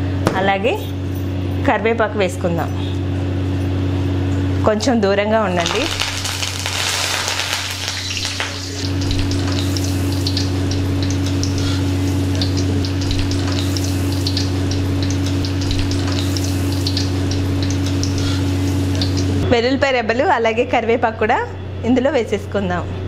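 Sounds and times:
steady low hum: 0.0 - 23.0
garlic sizzling in hot oil: 5.6 - 19.4.

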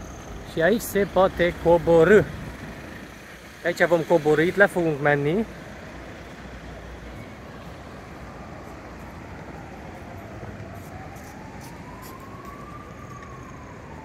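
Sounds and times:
emergency siren wailing: 0.0 - 2.6, 6.6 - 14.0
street noise: 0.0 - 14.0.

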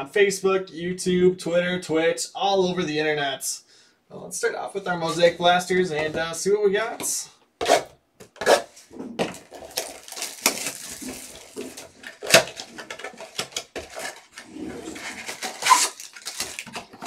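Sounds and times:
cardboard boxes and foil packs handled: 9.2 - 17.0.

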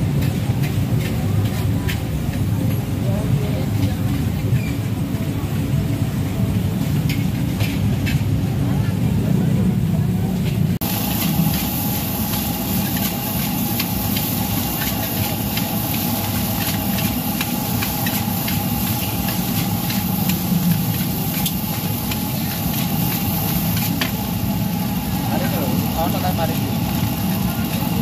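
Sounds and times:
metal spatula scraping wok: 11.1 - 26.0.

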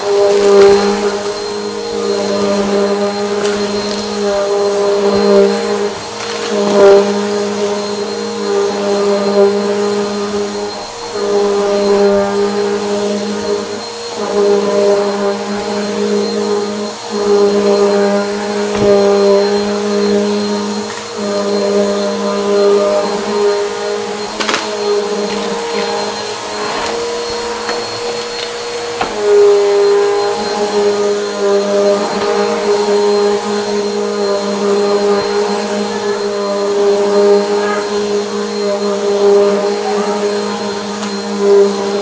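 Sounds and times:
upright vacuum running: 0.0 - 42.0.

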